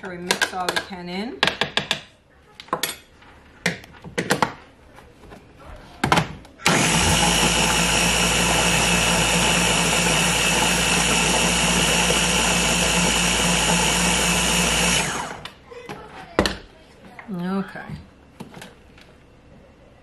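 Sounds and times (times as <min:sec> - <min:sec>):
blender motor running: 0:06.6 - 0:15.5.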